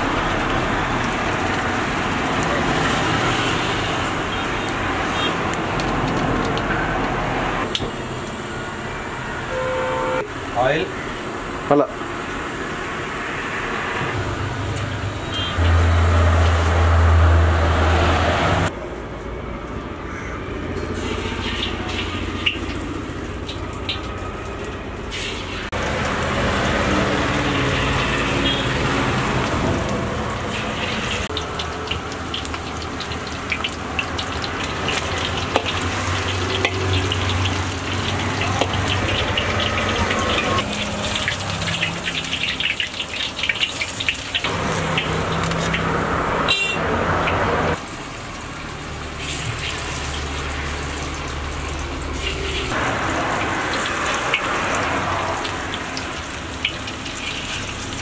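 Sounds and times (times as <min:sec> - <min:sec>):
chicken deep-frying in hot oil: 0:00.0 - 0:07.1, 0:20.9 - 0:58.0.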